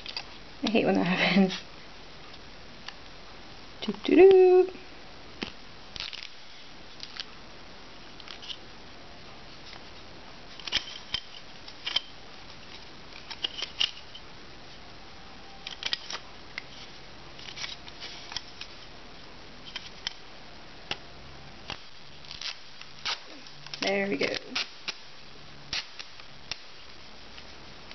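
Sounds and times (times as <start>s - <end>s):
faint steady hiss: 0.0s - 27.9s
tape roll clicks and scrapes: 8.2s - 8.6s, 10.5s - 14.2s, 25.7s - 26.9s.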